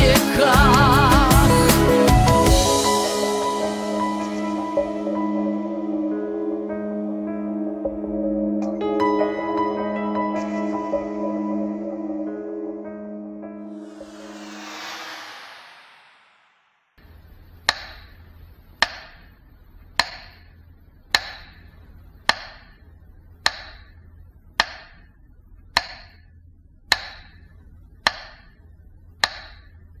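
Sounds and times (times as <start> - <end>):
low steady hum: 17.0 - 30.0
sharp ticks: 17.6 - 18.2.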